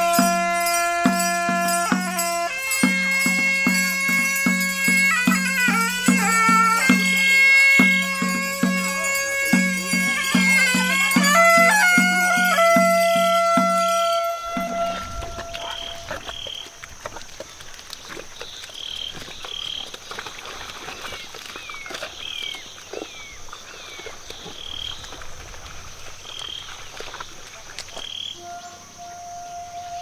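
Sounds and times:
folk pipe music: 0:00.0 - 0:16.8, 0:28.4 - 0:30.0
insect hiss: 0:00.0 - 0:30.0
frogs croaking: 0:05.8 - 0:30.0.

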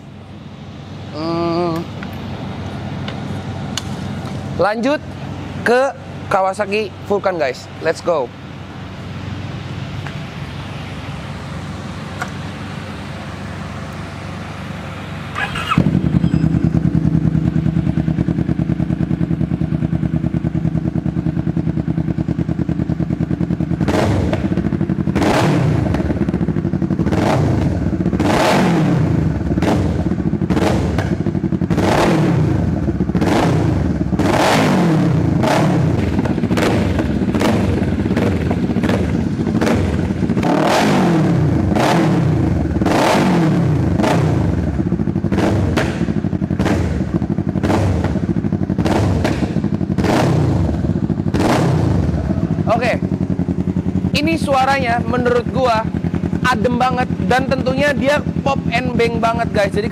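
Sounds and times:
motorcycle engine idling and revving: 0:00.0 - 0:59.9
exhaust pops and bangs: 0:29.5 - 0:32.1, 0:35.4 - 0:40.8, 0:44.9 - 0:54.0.

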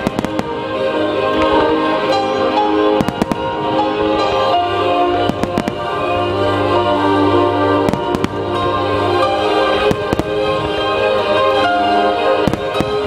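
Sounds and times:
fireworks bangs: 0:00.0 - 0:01.7, 0:02.6 - 0:06.6, 0:07.7 - 0:11.6, 0:12.3 - 0:13.0
music with sustained notes: 0:00.0 - 0:13.0.

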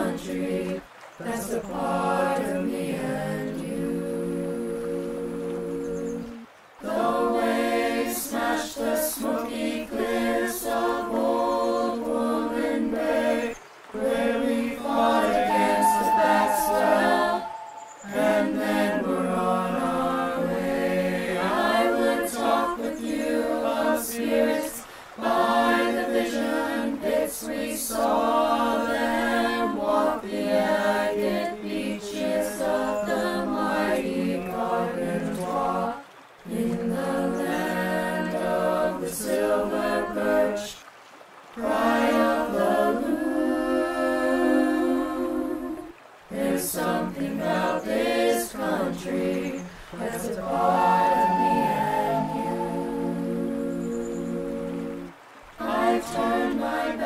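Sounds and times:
choir singing a cappella: 0:00.0 - 0:40.8, 0:41.6 - 0:57.0
singers breathing: 0:24.8 - 0:25.2.

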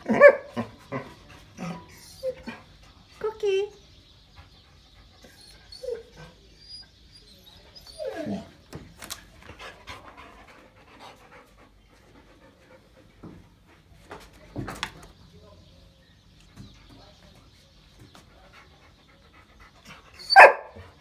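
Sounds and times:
dog panting: 0:04.1 - 0:06.7, 0:09.3 - 0:14.1, 0:16.4 - 0:21.0
dog whining: 0:05.3 - 0:08.5.

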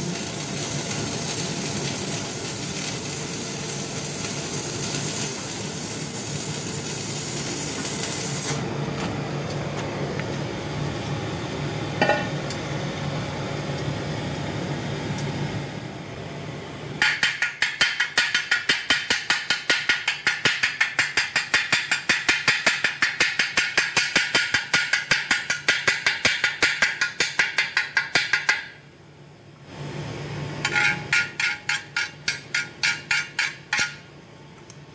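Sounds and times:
welding arc hissing and crackling: 0:00.0 - 0:08.6
welder steady hum: 0:00.0 - 0:17.4.

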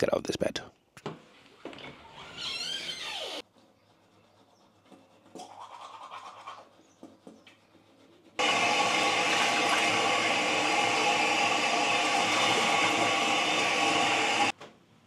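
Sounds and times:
loud steady whirring: 0:08.4 - 0:14.5.

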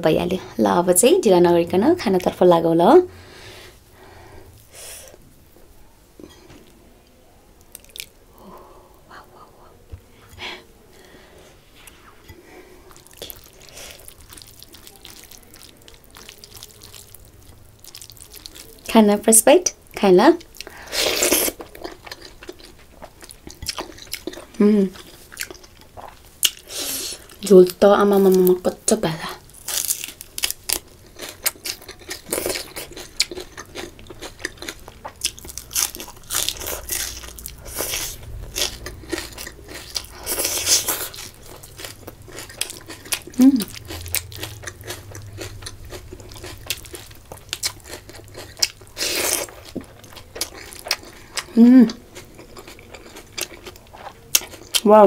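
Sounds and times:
chewing and crunching: 0:07.6 - 0:08.2, 0:11.8 - 0:19.0, 0:20.4 - 0:28.6, 0:29.5 - 0:55.0
food mixed by hand wet squishes: 0:11.4 - 0:55.0.

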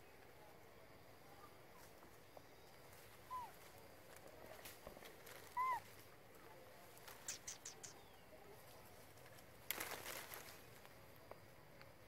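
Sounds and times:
faint outdoor background: 0:00.0 - 0:12.0
high chirps: 0:07.2 - 0:08.1
rising and falling calls: 0:07.3 - 0:08.0.

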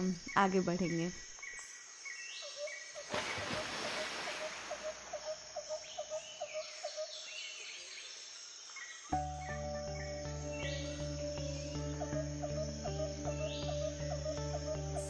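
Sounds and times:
bird calling repeated notes: 0:09.1 - 0:15.0.

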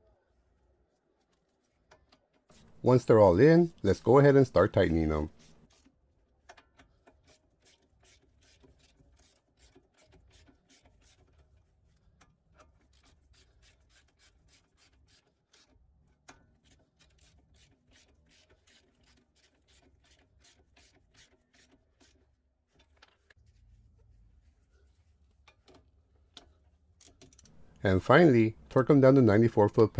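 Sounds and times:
hand ratchet clicking: 0:26.4 - 0:27.8.

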